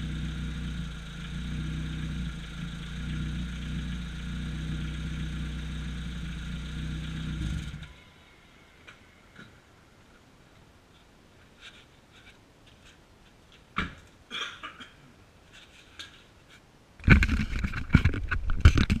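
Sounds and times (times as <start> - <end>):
camera rubbing and knocking: 15.5 - 19.0.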